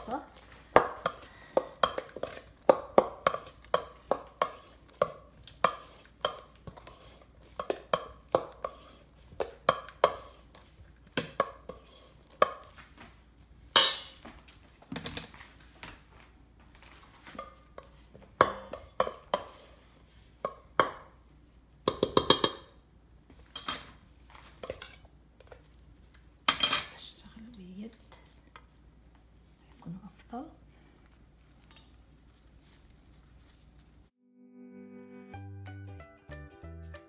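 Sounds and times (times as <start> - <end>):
utensil scraping metal bowl: 0.0 - 12.6, 17.8 - 20.0.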